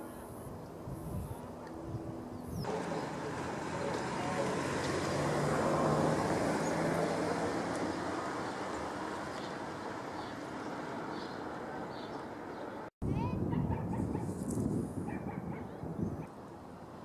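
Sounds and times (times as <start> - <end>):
road vehicle passing: 2.1 - 12.9.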